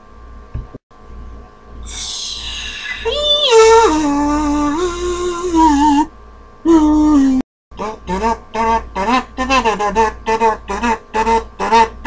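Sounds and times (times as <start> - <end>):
person singing wordless tune: 1.9 - 6.1, 6.7 - 12.0.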